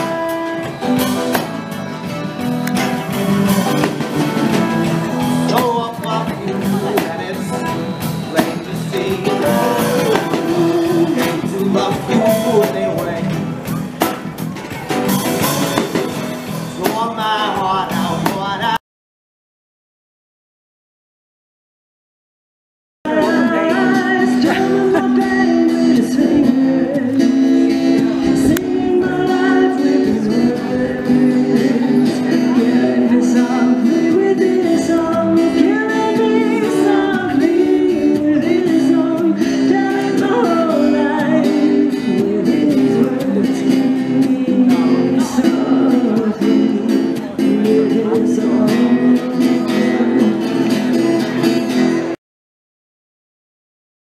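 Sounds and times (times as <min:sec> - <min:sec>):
acoustic guitar strumming: 0:00.0 - 0:18.8, 0:23.1 - 0:52.2
woman singing into a microphone: 0:23.1 - 0:50.6.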